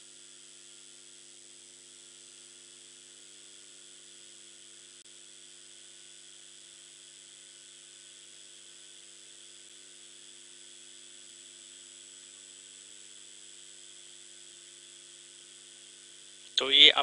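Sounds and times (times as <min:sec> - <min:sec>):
low electrical hum: 0:00.0 - 0:17.0
faint steady hiss: 0:13.9 - 0:17.0.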